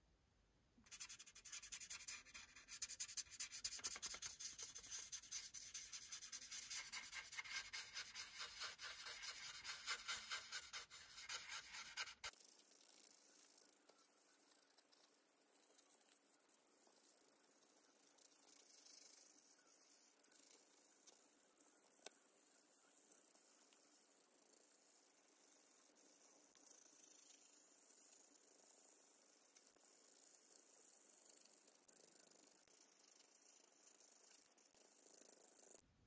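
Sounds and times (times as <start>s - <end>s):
marker scribbling on paper: 0.9s - 12.3s.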